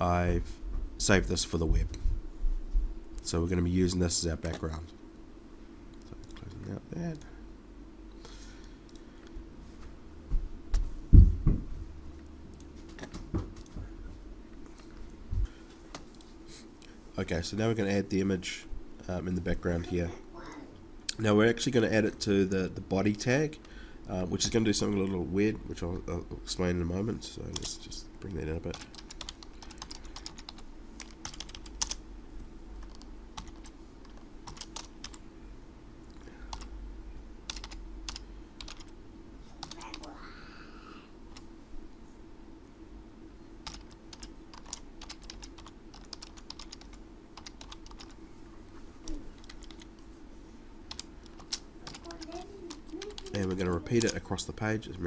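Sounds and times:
faint steady hum: 0.0 - 55.0
computer keyboard typing: 28.7 - 32.0, 32.8 - 35.2, 37.5 - 38.9, 39.6 - 39.9, 43.6 - 48.2, 49.4 - 49.9, 50.9 - 53.3.

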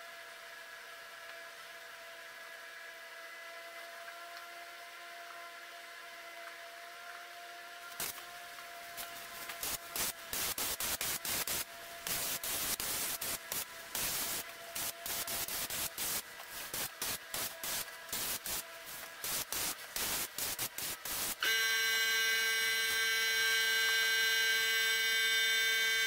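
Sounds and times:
paint spray gun hissing: 7.9 - 8.2, 8.9 - 21.4.

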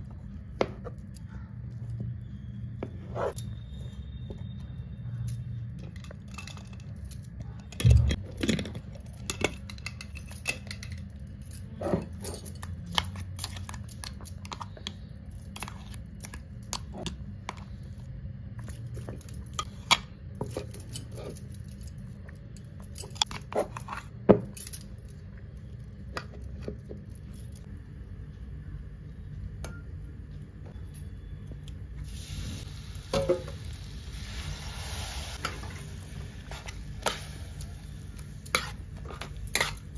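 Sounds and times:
low steady hum: 0.0 - 39.9
food sizzling in a pan: 32.1 - 38.8.

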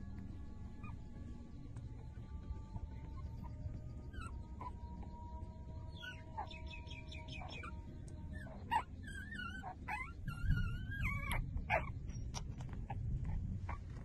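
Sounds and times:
low rumble: 0.0 - 14.0
puppies squeaking and whining: 3.1 - 5.3, 5.9 - 14.0.

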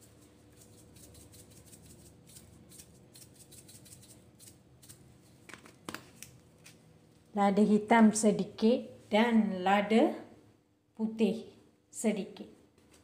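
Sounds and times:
pepper shaker rattling: 0.0 - 5.0.

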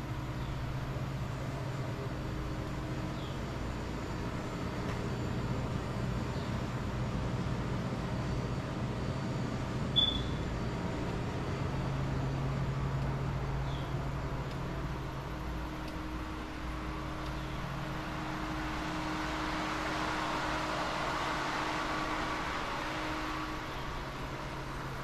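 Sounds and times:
steady low hum: 0.0 - 25.0
short high chirp: 10.0 - 10.4.

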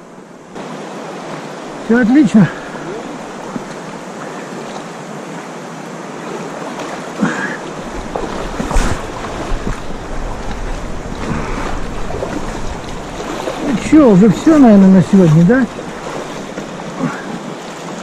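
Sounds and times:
river water rushing over rocks: 0.0 - 18.0
boots wading through water: 0.6 - 18.0
wind buffeting microphone: 7.8 - 17.0.

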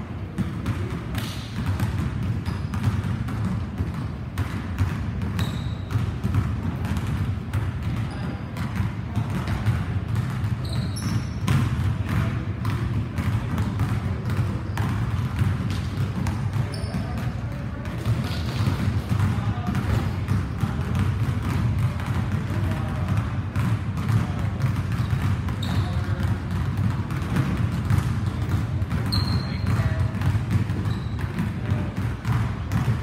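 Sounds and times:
basketballs bouncing on wood floor: 0.0 - 33.0
sneaker squeaks: 1.2 - 3.2, 4.8 - 6.3, 7.8 - 8.8, 10.2 - 11.8, 14.3 - 17.4, 18.0 - 18.8, 24.9 - 26.6, 27.4 - 31.9.

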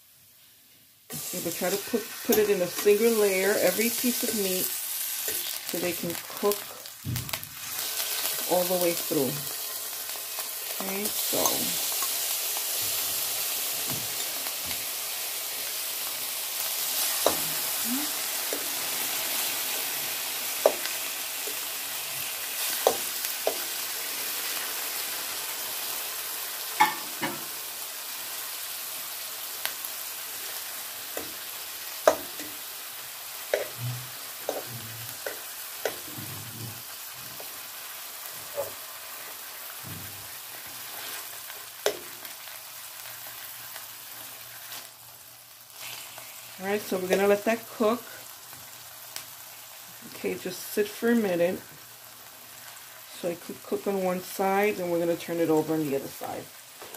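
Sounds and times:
steak sizzling in a frying pan: 0.3 - 56.9
metal fork tapping a pan: 26.8 - 27.4.

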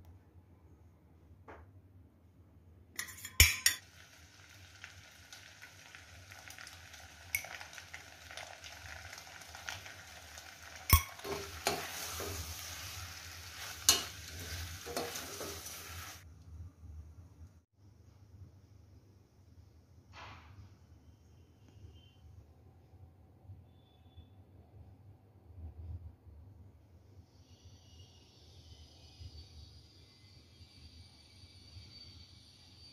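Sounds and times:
spoon clinking against metal pot: 3.0 - 3.8, 10.9 - 12.0, 13.9 - 15.3
pasta sauce sizzling in pot: 3.1 - 16.3, 27.3 - 32.9.

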